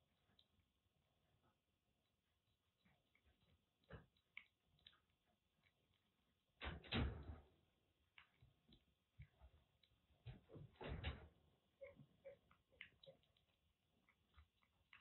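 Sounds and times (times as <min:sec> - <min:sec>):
kitten licking: 0:00.0 - 0:06.7, 0:07.5 - 0:15.0.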